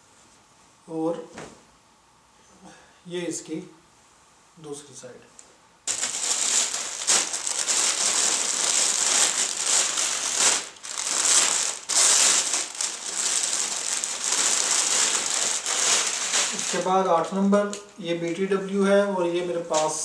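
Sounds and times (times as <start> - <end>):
close rustling and crinkling: 5.9 - 18.4.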